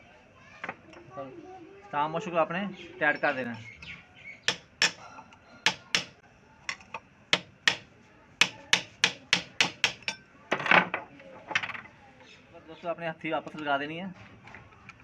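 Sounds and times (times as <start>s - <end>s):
hammer tapping steel punch: 4.5s - 5.0s, 5.7s - 6.2s, 7.4s - 10.2s.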